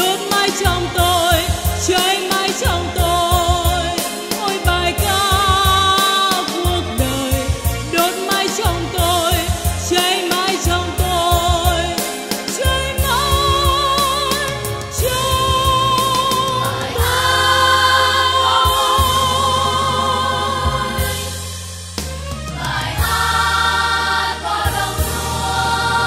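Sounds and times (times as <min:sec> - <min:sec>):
voices singing with vibrato: 0:00.0 - 0:21.6, 0:22.3 - 0:26.0
instrumental accompaniment: 0:00.0 - 0:26.0
choir singing: 0:15.0 - 0:21.5, 0:22.5 - 0:26.0.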